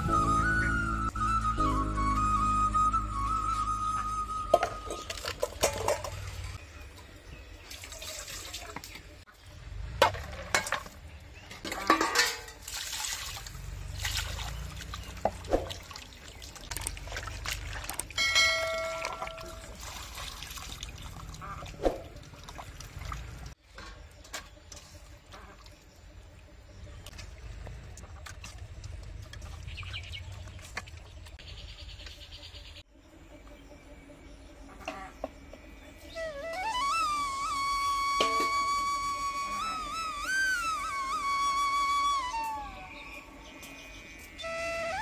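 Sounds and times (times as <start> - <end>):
water splashing and dribbling: 4.4 - 31.4
metal bowls knocking: 11.6 - 12.6, 38.2 - 38.6.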